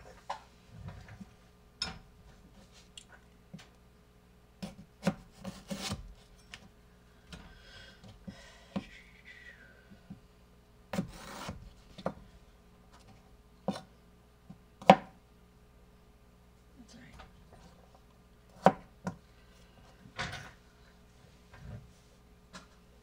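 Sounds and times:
knife scraping through potato: 4.6s - 6.0s, 11.0s - 11.6s.

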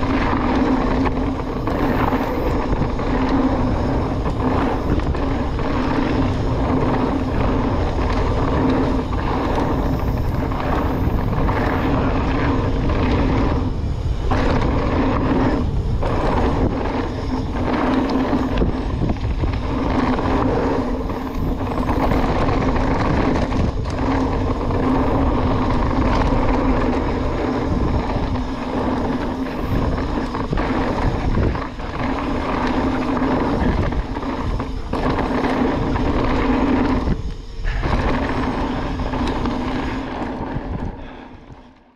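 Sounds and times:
bike tyres rolling on dirt: 0.0s - 41.9s
bike whirr and rattle: 0.0s - 41.9s.

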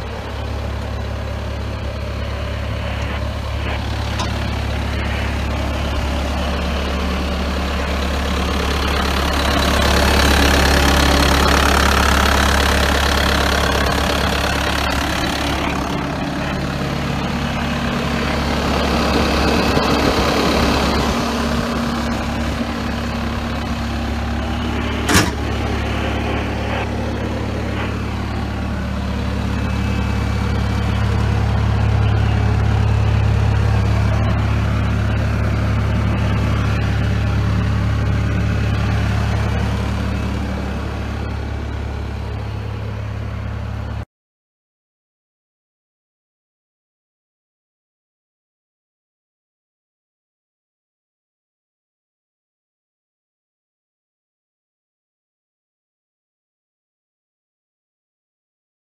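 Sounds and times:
diesel engine idling: 0.0s - 44.1s.

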